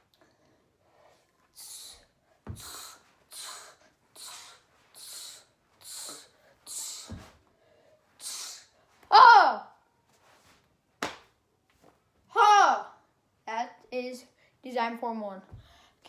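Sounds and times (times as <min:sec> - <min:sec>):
child's sharp exhales: 0:01.6 - 0:07.3, 0:08.2 - 0:08.8.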